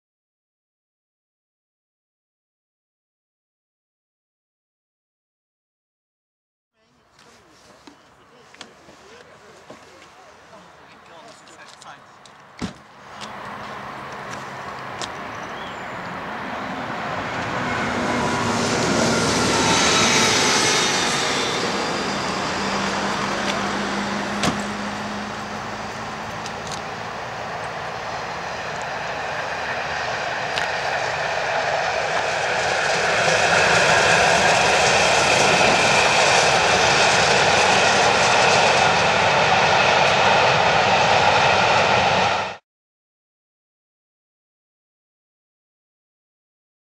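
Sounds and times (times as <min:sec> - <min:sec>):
train coaches rolling by: 0:07.0 - 0:42.5
steam locomotive rumble: 0:12.9 - 0:42.6.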